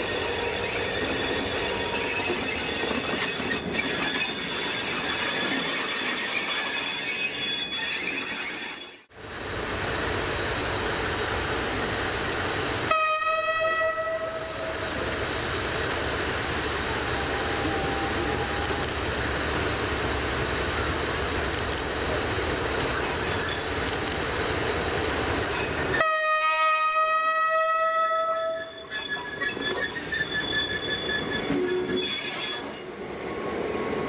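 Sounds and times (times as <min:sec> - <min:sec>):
diesel locomotive engine running: 0:09.1 - 0:26.0
locomotive horn: 0:12.9 - 0:14.8, 0:26.0 - 0:28.9.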